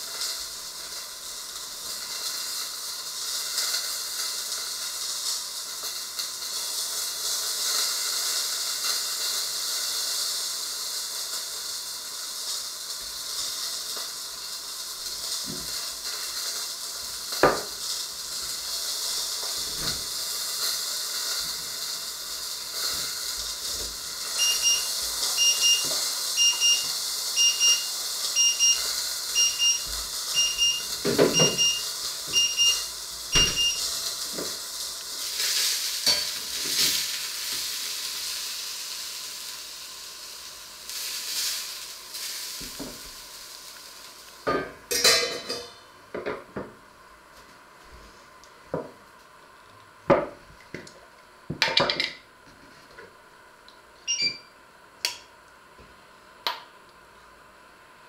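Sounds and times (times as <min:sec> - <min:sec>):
food sizzling in a frying pan: 0:00.0 - 0:57.7
short electronic beeps: 0:24.4 - 0:28.8, 0:29.4 - 0:33.9, 0:54.1 - 0:54.5.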